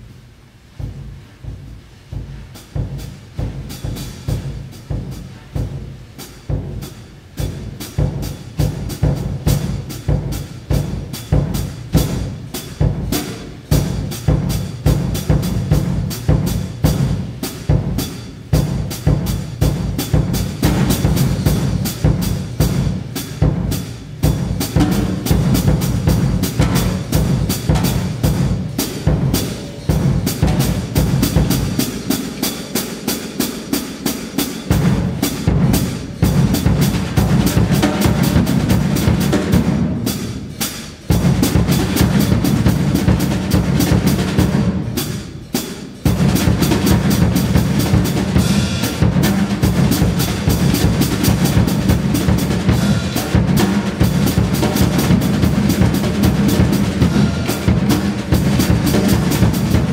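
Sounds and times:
drum kit playing fast: 0:00.0 - 0:59.9
heavy low drums: 0:00.0 - 0:59.9.

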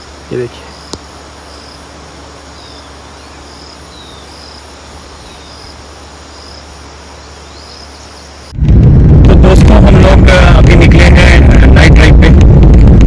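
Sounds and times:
insect chirping in pulses: 0:00.0 - 0:08.6
low steady hiss: 0:00.0 - 0:13.0
wind noise: 0:08.3 - 0:13.0.

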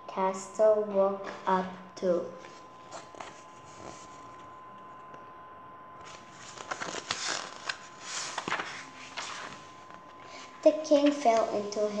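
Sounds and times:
book pages rustling: 0:02.4 - 0:04.5, 0:06.0 - 0:10.4, 0:11.0 - 0:11.6.

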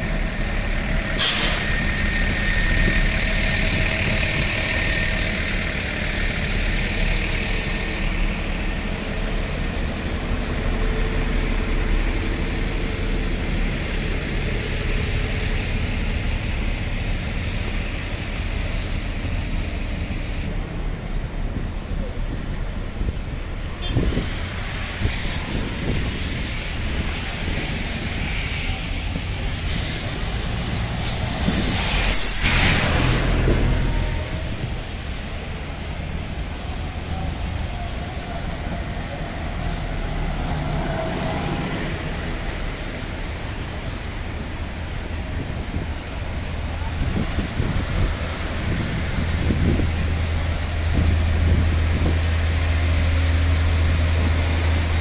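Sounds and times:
diesel buses idling: 0:00.0 - 0:55.0
air brake hiss: 0:01.1 - 0:02.4, 0:27.5 - 0:36.7.

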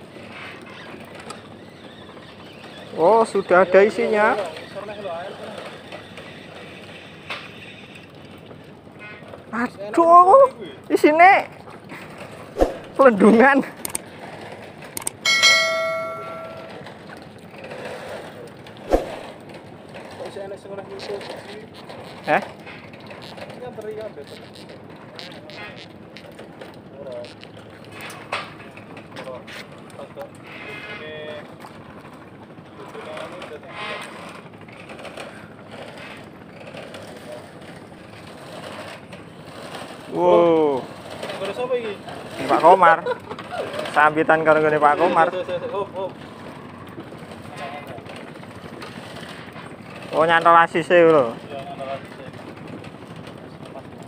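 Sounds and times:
quick clicks: 0:13.8 - 0:14.0, 0:15.0 - 0:15.2
notification bell chime: 0:15.3 - 0:16.8.

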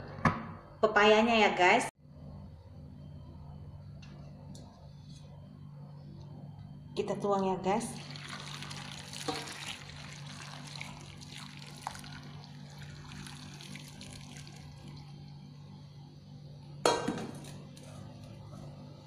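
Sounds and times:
water pouring and splashing: 0:08.0 - 0:15.1.

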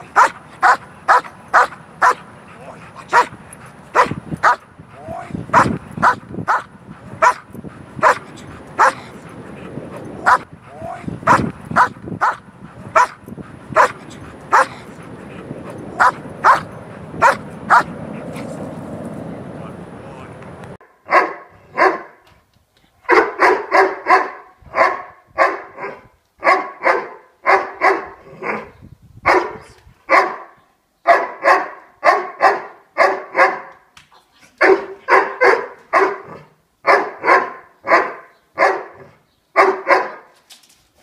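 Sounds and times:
dog barking sharply: 0:00.2 - 0:02.2, 0:03.1 - 0:03.3, 0:05.6 - 0:07.4, 0:08.0 - 0:08.2, 0:08.8 - 0:09.1, 0:13.0 - 0:13.2, 0:16.0 - 0:17.9, 0:21.1 - 0:22.2, 0:23.1 - 0:28.1, 0:29.3 - 0:30.5, 0:31.1 - 0:33.7, 0:34.6 - 0:36.3, 0:36.9 - 0:40.3.

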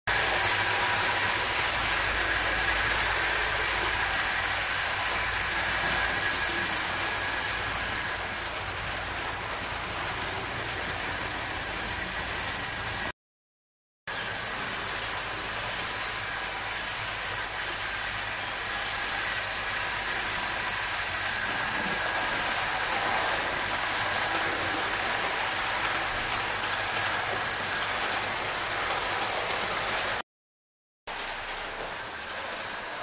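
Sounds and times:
model trains rattling on metal track: 0:00.1 - 0:13.1, 0:14.1 - 0:30.2, 0:31.1 - 0:33.0.

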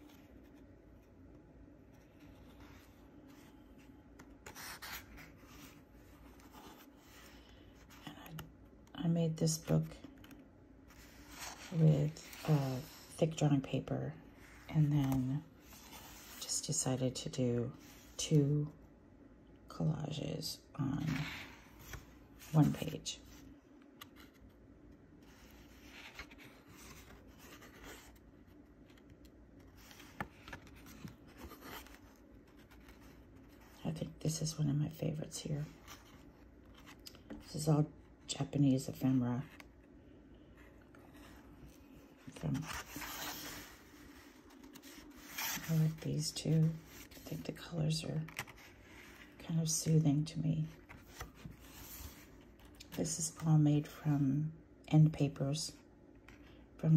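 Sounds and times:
paper pages turning: 0:02.0 - 0:08.5, 0:25.2 - 0:33.8, 0:40.6 - 0:49.4, 0:50.6 - 0:53.0
paper page turning: 0:28.8 - 0:33.6, 0:42.3 - 0:49.3.

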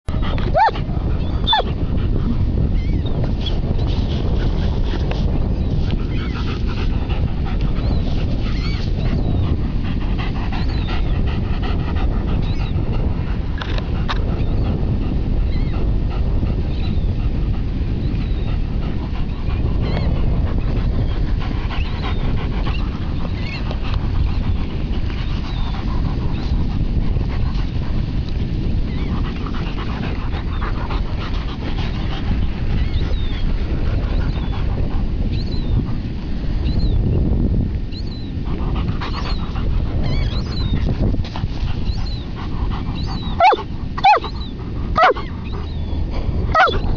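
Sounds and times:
wind rumble on microphone: 0:00.0 - 0:46.9
dog whining: 0:00.2 - 0:01.7, 0:43.0 - 0:45.9, 0:46.5 - 0:46.9
paws scraping through sand: 0:03.2 - 0:16.7, 0:18.6 - 0:36.5, 0:38.4 - 0:46.9.

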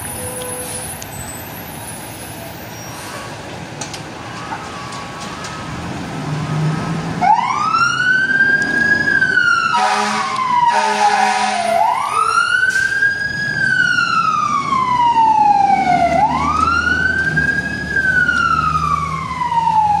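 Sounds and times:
fire engine siren wailing: 0:04.2 - 0:20.0
short horn blasts: 0:09.7 - 0:11.7.

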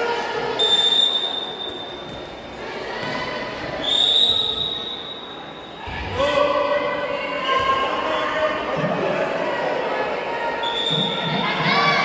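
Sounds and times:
crowd murmur: 0:00.0 - 0:12.0
referee's whistle blasts: 0:00.6 - 0:02.1, 0:03.8 - 0:05.8, 0:10.6 - 0:11.3.

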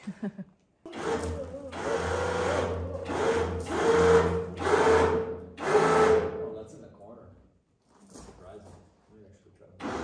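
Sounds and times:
electric winch motor whining: 0:00.9 - 0:06.4.

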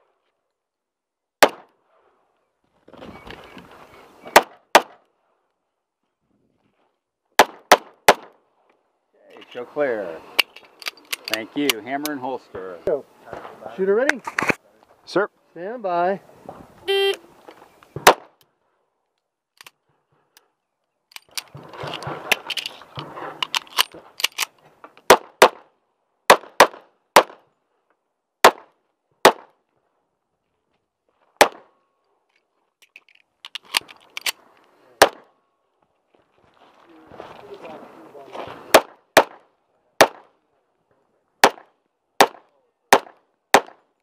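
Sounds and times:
pistol shots: 0:01.4 - 0:01.7, 0:04.3 - 0:05.0, 0:07.4 - 0:08.4, 0:18.0 - 0:18.4, 0:26.3 - 0:27.4, 0:28.4 - 0:29.6, 0:31.4 - 0:31.7, 0:35.0 - 0:35.3, 0:38.7 - 0:40.4, 0:41.4 - 0:43.8.

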